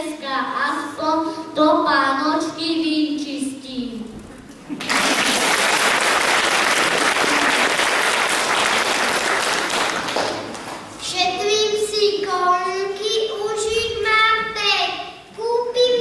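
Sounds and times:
audience clapping: 0:04.7 - 0:11.0.

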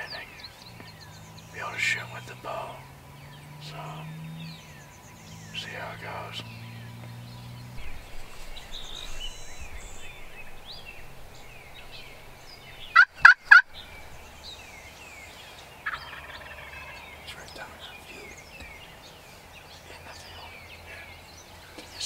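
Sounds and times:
songbirds singing: 0:00.0 - 0:22.0
turkey gobbling: 0:07.8 - 0:14.5, 0:15.8 - 0:16.9.

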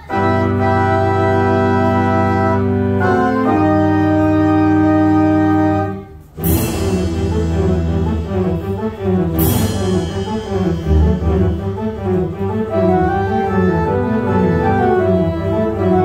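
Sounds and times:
pipe organ melody: 0:00.0 - 0:16.0
cymbal crash: 0:06.4 - 0:14.0.

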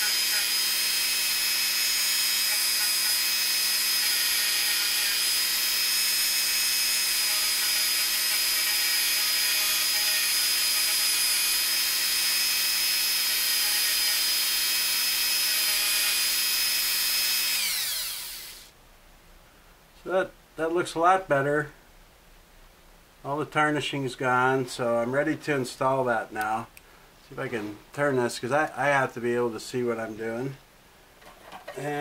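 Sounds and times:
rotary tool wire brush whine: 0:00.0 - 0:18.7.

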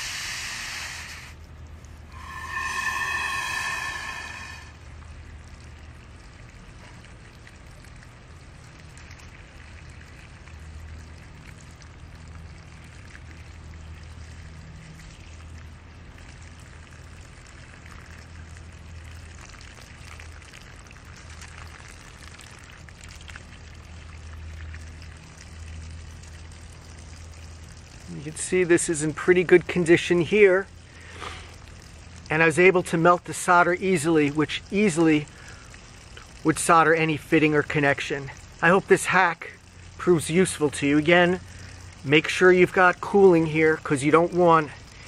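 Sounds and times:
short whistling tone: 0:02.1 - 0:04.8.

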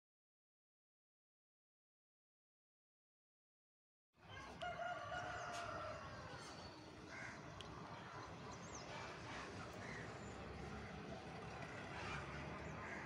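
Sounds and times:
faint outdoor background hum: 0:04.2 - 0:13.0
bird long drawn-out call: 0:11.6 - 0:13.0.

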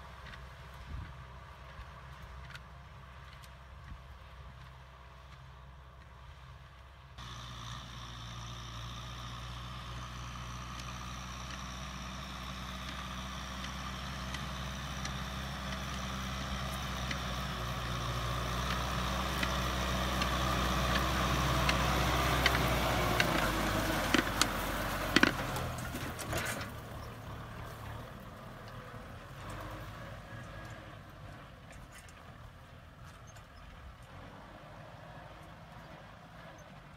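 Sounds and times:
tractor diesel engine running: 0:00.0 - 0:36.9
sharp knocks and clicks: 0:22.4 - 0:26.5.

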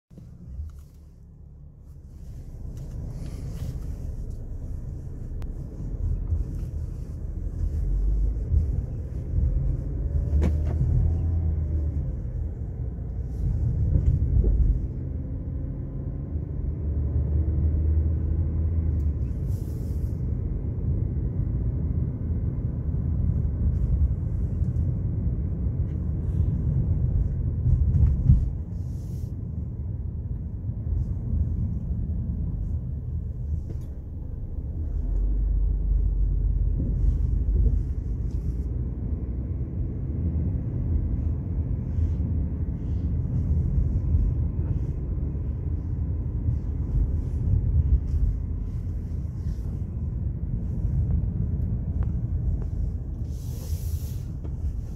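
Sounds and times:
car engine and tyre rumble: 0:00.0 - 0:54.9.

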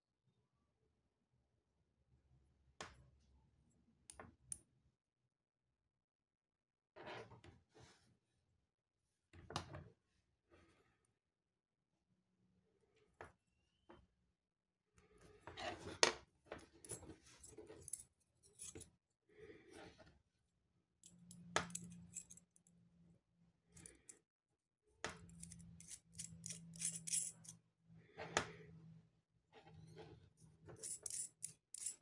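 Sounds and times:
metal parts clicking and scraping: 0:16.8 - 0:18.9, 0:25.3 - 0:27.6, 0:30.8 - 0:32.0.

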